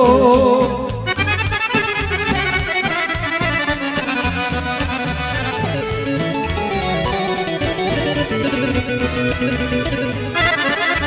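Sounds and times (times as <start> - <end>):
accordion melody: 0.0 - 11.0
pulsing bass line: 0.0 - 11.0.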